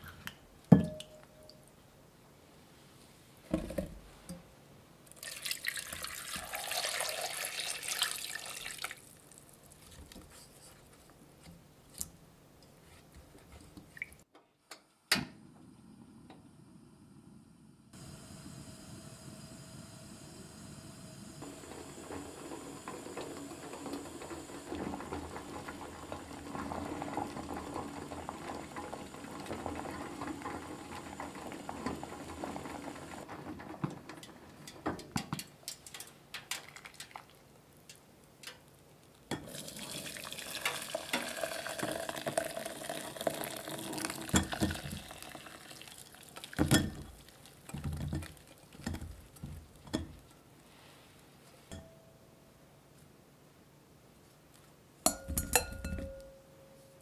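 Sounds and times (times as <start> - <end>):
water poured through strainer: 5.1 - 9.4, 39.5 - 48.9
water bubbling in a pot: 21.4 - 33.3, 39.3 - 50.2.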